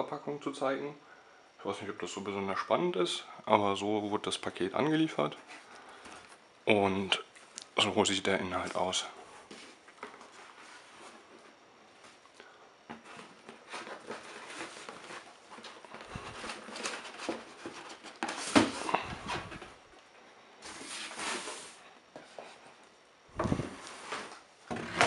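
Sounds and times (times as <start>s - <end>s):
cardboard and paper rustling: 8.5s - 12.2s, 12.9s - 19.8s, 20.6s - 22.8s.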